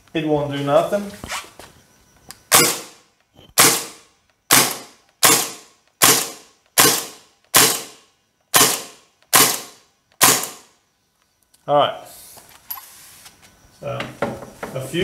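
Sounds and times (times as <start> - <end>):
gel blaster shots: 2.5 - 3.0, 3.6 - 10.6.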